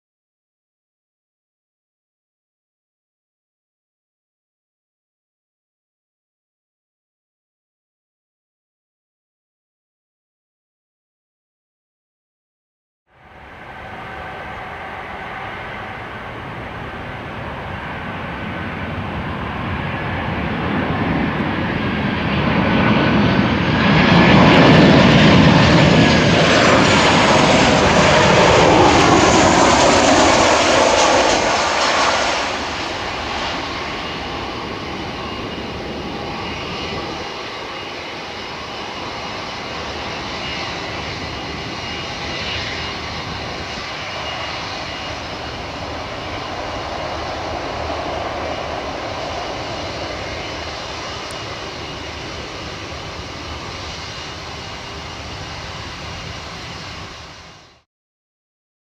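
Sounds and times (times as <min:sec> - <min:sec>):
jet engine whine falling in pitch: 0:13.1 - 0:57.8
jet engines passing overhead: 0:13.1 - 0:57.8.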